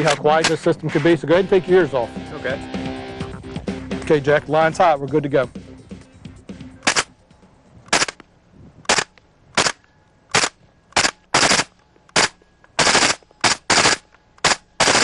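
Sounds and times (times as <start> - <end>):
suppressed gunshots: 6.8 - 7.1, 8.9 - 15.0.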